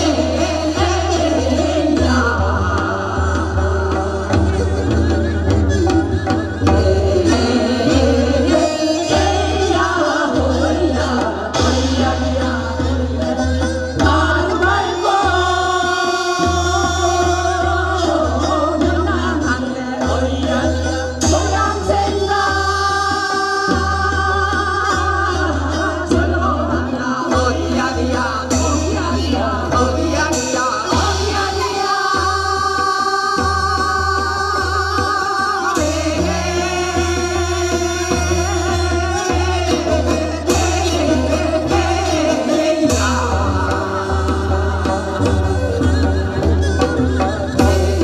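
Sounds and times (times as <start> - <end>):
women singing together: 0.0 - 5.2, 6.2 - 48.0
steady drum beat: 0.0 - 48.0.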